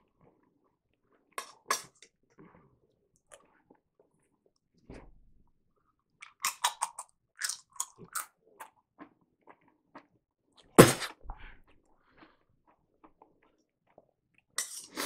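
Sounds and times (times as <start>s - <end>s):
person sneezing: 10.8s - 11.2s.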